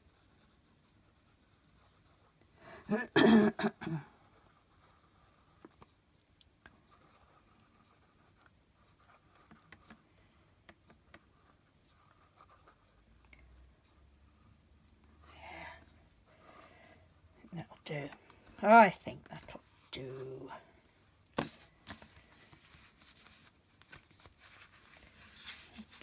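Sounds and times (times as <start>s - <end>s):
hands rubbing paper on a desk: 21.4s - 26.0s.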